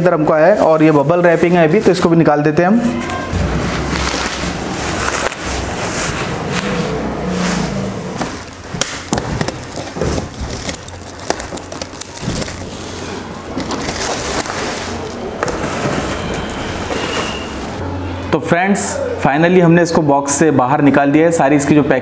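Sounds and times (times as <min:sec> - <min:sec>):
plastic wrap crinkling: 0:02.9 - 0:17.8.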